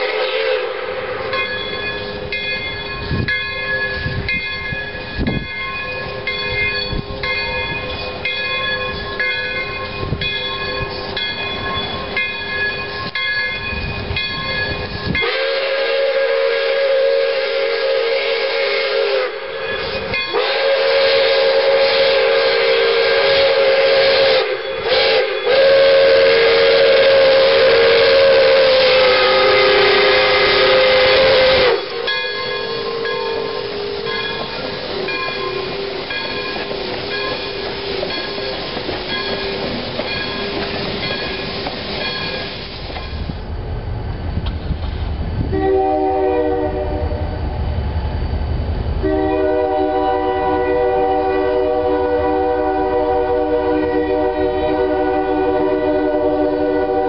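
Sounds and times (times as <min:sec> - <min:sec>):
steam whistle blasts: 0:00.0 - 0:02.4, 0:15.0 - 0:39.7, 0:45.5 - 0:47.4, 0:49.0 - 0:57.0
locomotive bell ringing: 0:01.2 - 0:15.4, 0:19.4 - 0:20.8, 0:29.2 - 0:43.3.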